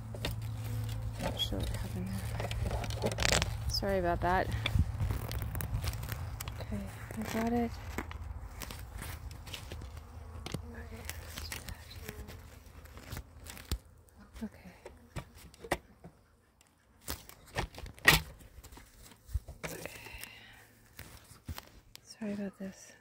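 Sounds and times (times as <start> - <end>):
handling clicks and rustles: 0.0 - 13.9.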